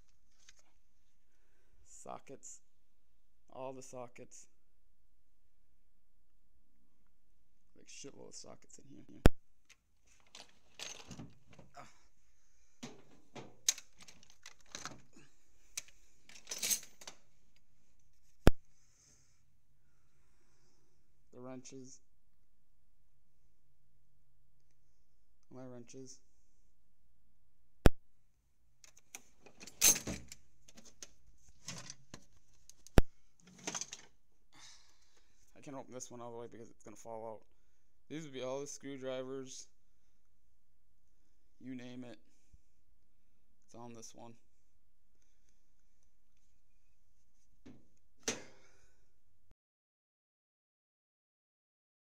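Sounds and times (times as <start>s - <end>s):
metal tools clinking in drawers: 10.1s - 11.7s, 12.8s - 15.1s, 15.8s - 17.2s, 28.9s - 32.0s, 33.5s - 34.1s.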